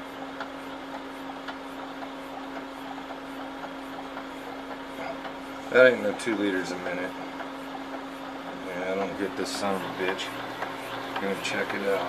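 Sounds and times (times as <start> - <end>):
oxygen compressor humming: 0.0 - 12.0.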